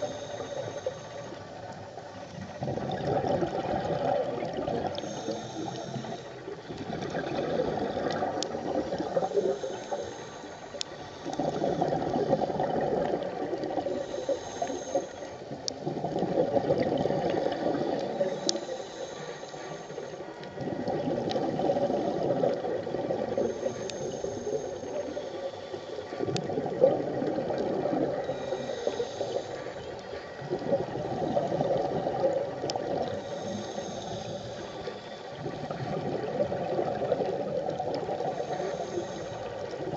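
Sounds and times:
regulator inhalation hiss: 0:00.0 - 0:02.6, 0:05.0 - 0:06.7, 0:08.8 - 0:12.6, 0:13.8 - 0:15.6, 0:17.4 - 0:20.4, 0:23.3 - 0:26.2, 0:28.2 - 0:30.3, 0:33.0 - 0:35.8, 0:38.1 - 0:39.9
exhaled air bubbling underwater: 0:00.0 - 0:39.9.

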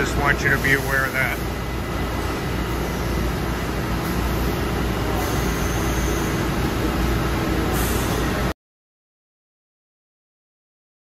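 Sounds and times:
industrial machinery humming: 0:00.0 - 0:08.6.

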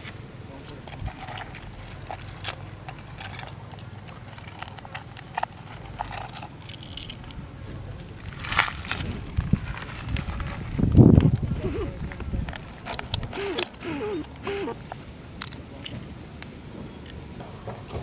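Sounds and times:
snail shells clicking on wood: 0:00.6 - 0:07.5, 0:12.2 - 0:17.2.

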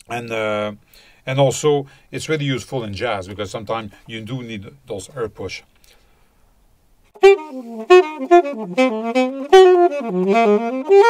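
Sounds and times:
alto saxophone jazz phrase: 0:07.2 - 0:11.0.

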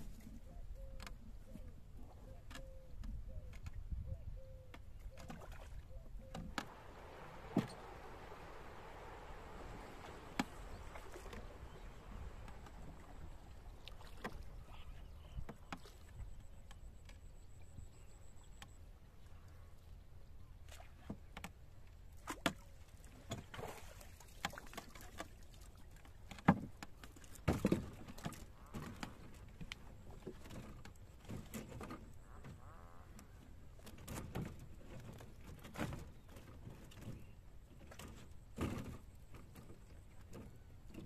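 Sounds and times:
water splashing: 0:06.6 - 0:16.2, 0:22.2 - 0:26.3.

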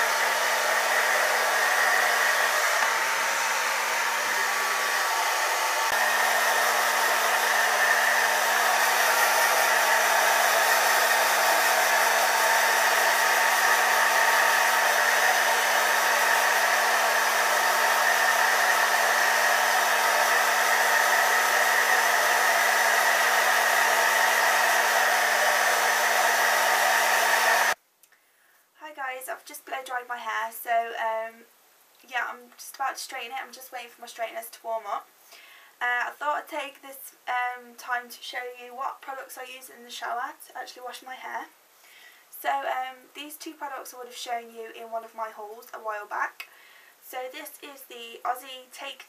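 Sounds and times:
brushing hair: 0:00.0 - 0:27.8
hair dryer blowing: 0:00.0 - 0:27.8.

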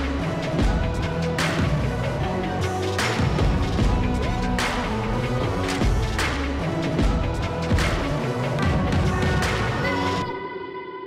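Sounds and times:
background music with held tones: 0:00.0 - 0:11.0.

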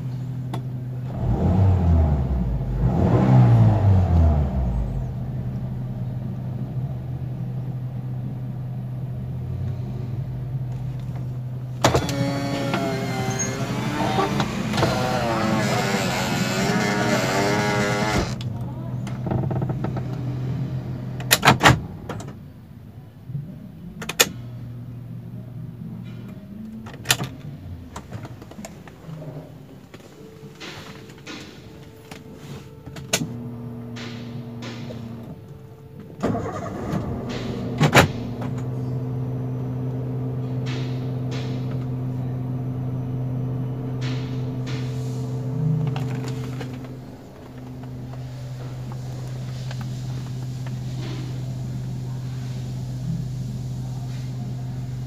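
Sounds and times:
car engine idle hum: 0:00.0 - 0:55.0.

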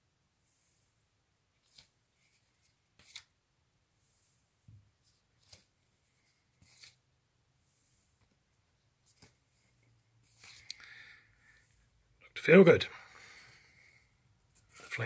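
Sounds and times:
cardboard record sleeves flipping: 0:01.6 - 0:03.3, 0:05.4 - 0:05.7, 0:06.6 - 0:07.0.

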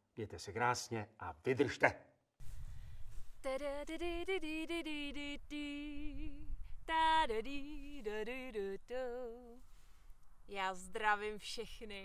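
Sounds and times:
woman singing unaccompanied: 0:03.4 - 0:09.6, 0:10.5 - 0:12.0.

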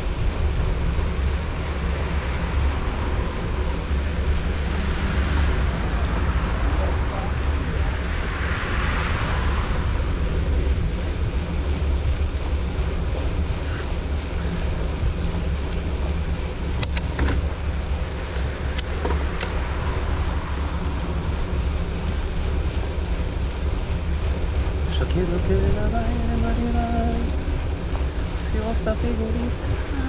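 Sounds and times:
road noise: 0:00.0 - 0:30.0
wind rumble on microphone: 0:00.0 - 0:30.0
sharp clicks: 0:16.7 - 0:17.4.

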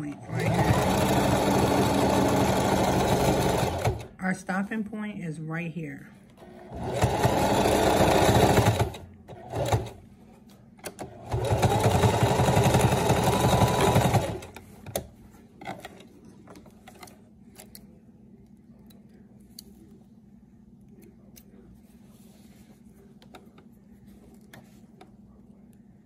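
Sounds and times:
sewing machine stitching: 0:00.2 - 0:04.2, 0:06.4 - 0:10.0, 0:10.8 - 0:15.0.

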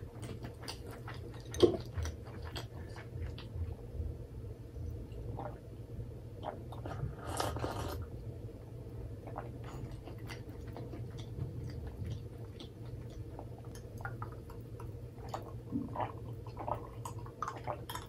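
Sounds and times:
person chewing: 0:00.0 - 0:03.8, 0:06.4 - 0:08.0, 0:09.2 - 0:18.0
low steady hum: 0:00.0 - 0:18.0.

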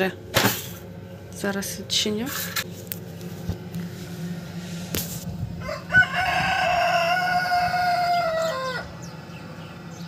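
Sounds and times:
rooster crowing: 0:05.6 - 0:09.1.

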